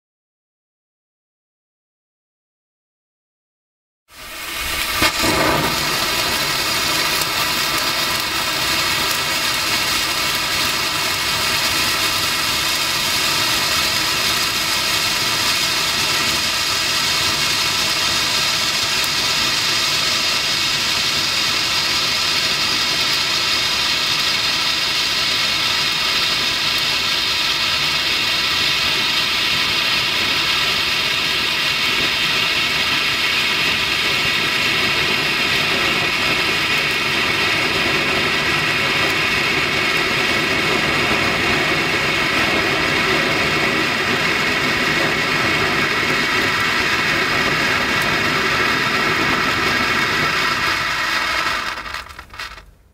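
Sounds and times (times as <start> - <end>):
flare burning with rushing hiss: 4.1 - 52.9.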